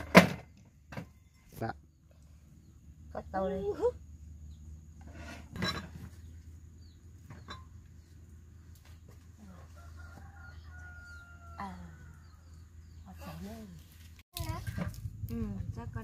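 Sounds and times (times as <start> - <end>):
rooster crowing: 9.5 - 12.6.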